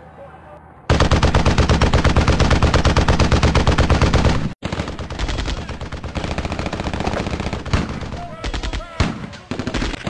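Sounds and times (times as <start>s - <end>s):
machine-gun fire: 0.9s - 10.0s.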